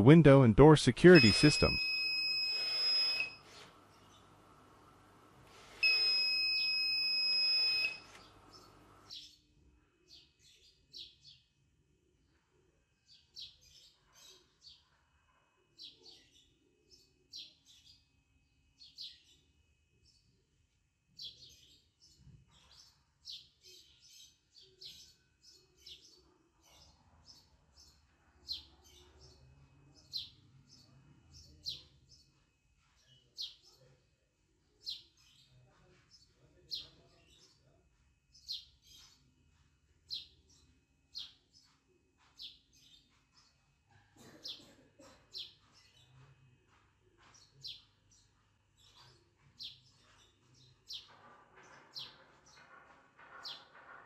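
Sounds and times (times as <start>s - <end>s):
bird chirping: 5.8s - 9.4s.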